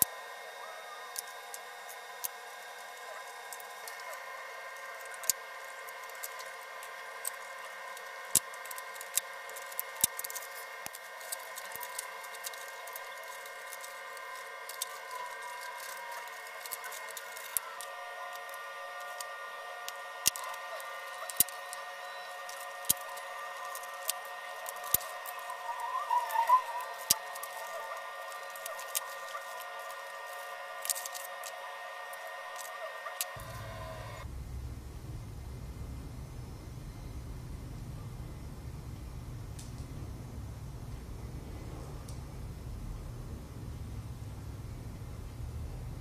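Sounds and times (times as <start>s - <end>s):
steady hum of held tones: 0.0s - 46.0s
barbed wire clicks and scratches: 1.1s - 34.1s.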